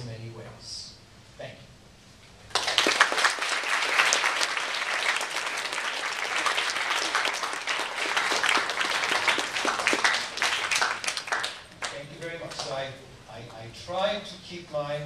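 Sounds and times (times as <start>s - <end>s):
audience applauding: 2.5s - 12.8s.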